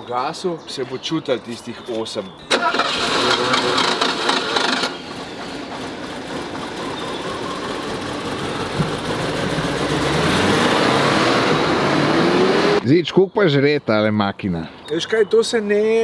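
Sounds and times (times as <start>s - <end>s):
car engine idling: 2.5s - 10.6s.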